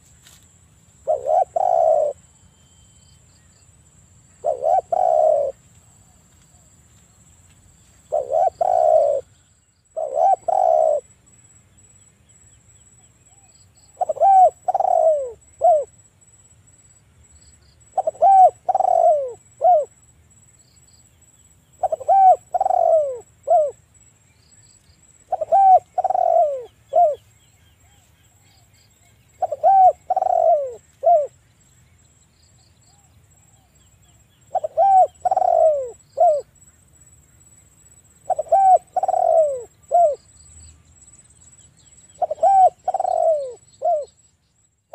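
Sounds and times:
dove cooing: 1.0 - 2.3, 4.4 - 6.2, 8.1 - 9.3, 9.9 - 11.1, 13.4 - 15.9, 17.9 - 19.9, 21.8 - 23.8, 25.3 - 28.0, 29.4 - 31.4, 34.5 - 36.5, 38.2 - 40.3, 42.1 - 44.2.

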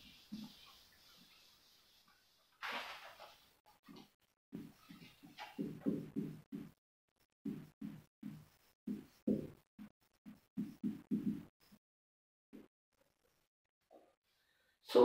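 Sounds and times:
marker writing on a whiteboard: 3.2 - 11.8.

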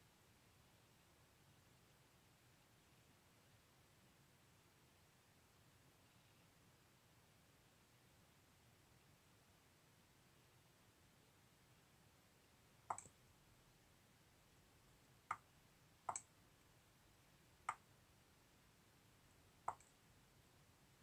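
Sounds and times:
computer mouse clicks: 12.9 - 13.2, 16.1 - 16.3, 19.7 - 19.9.

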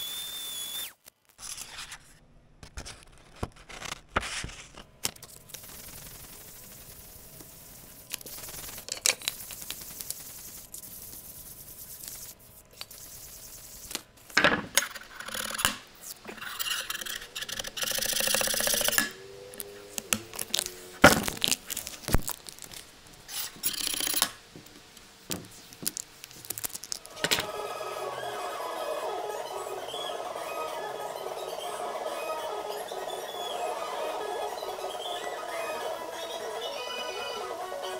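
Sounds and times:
sandpaper rubbing on wood: 5.5 - 14.0, 16.3 - 19.0
knife blade scraping label: 16.3 - 19.1.

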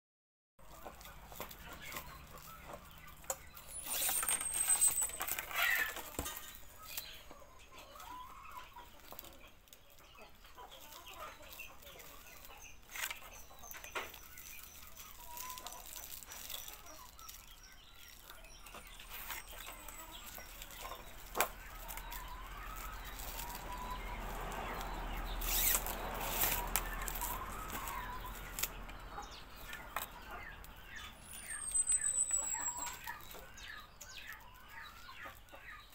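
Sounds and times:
broom bristles rustling: 0.6 - 7.1, 10.8 - 35.5
hens clucking: 5.5 - 14.2, 18.2 - 31.7
high falling chirps: 31.0 - 33.3.

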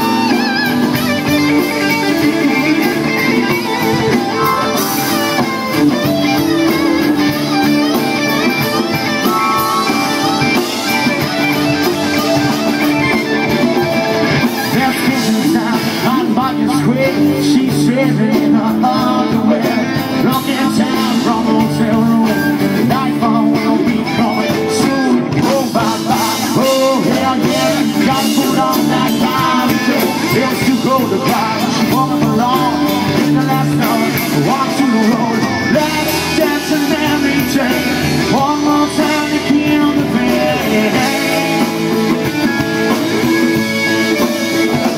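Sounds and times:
rock band playing: 0.0 - 44.9
lead singer singing: 14.4 - 43.0.

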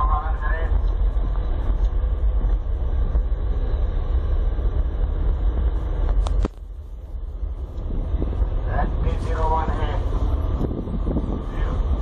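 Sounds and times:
road vehicle running: 0.0 - 12.0
wind buffeting microphone: 0.7 - 12.0.

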